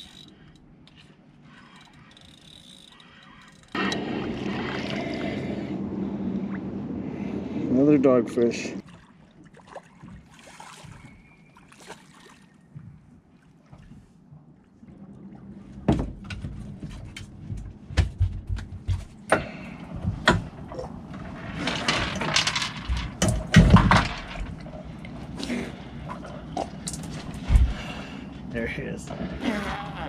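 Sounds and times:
knocks and thumps on boat deck: 15.7 - 21.0, 22.9 - 24.6.

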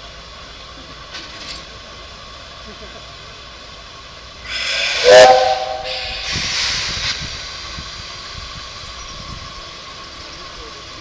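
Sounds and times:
locomotive steam hissing: 0.0 - 11.0
steam whistle blast: 4.5 - 6.6.

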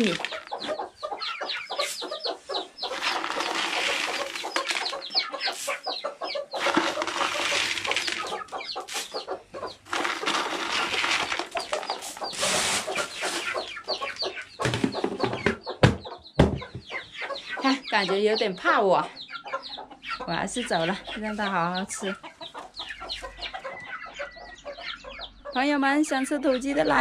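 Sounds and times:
chickens clucking: 0.0 - 27.0
rustling: 2.8 - 5.8, 6.6 - 9.2, 9.8 - 13.8.

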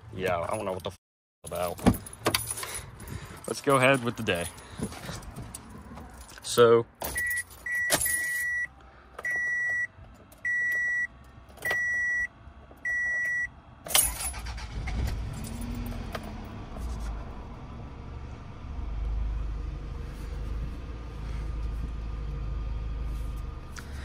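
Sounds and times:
dashboard warning chime beeping: 7.1 - 13.5
engine starting clunk: 13.9 - 15.9.

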